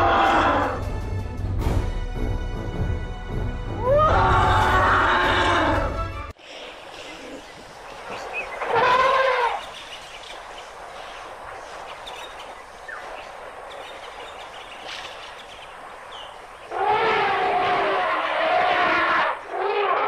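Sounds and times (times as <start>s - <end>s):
outdoor background noise: 3.8s - 20.0s
elephant calls: 6.9s - 10.0s, 16.6s - 20.0s.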